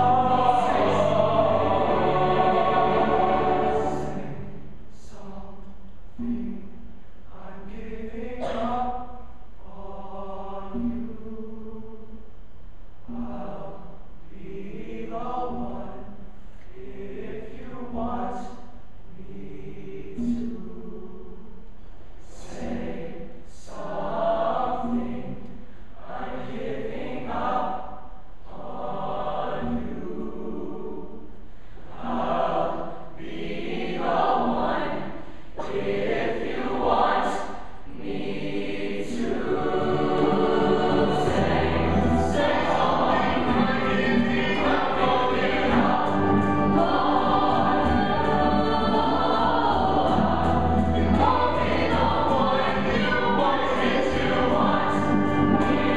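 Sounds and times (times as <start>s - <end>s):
choir singing: 0.0s - 5.6s, 7.3s - 12.0s, 13.1s - 16.1s, 16.7s - 21.4s, 22.2s - 25.4s, 26.0s - 55.9s.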